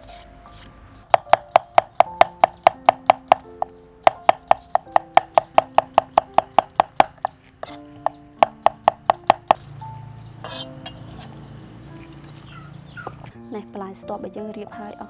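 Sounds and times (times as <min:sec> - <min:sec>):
knife slicing on cutting board: 0:10.5 - 0:11.3.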